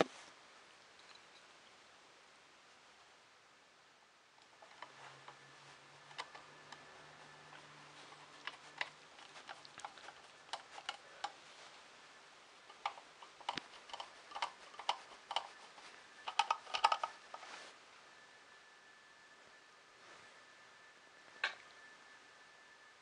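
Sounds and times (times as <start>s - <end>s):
small screws and plastic parts clicking: 4.4s - 11.4s, 12.7s - 17.5s.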